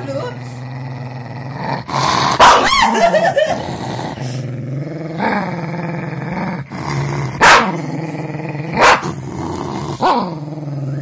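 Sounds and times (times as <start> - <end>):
dog growling: 0.0 - 11.0
dog barking: 2.4 - 3.1, 7.4 - 7.7, 8.8 - 9.1.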